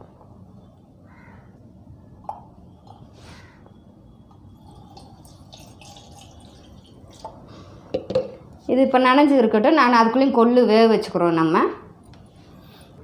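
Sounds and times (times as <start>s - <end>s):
water splashing into steel bowl: 5.0s - 7.4s.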